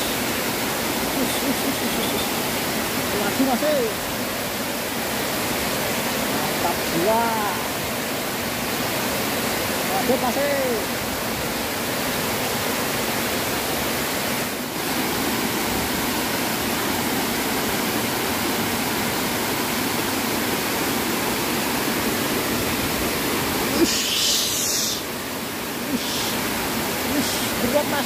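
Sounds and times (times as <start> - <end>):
water rushing over a weir: 0.0 - 28.0
scratchy hiss: 23.7 - 25.2.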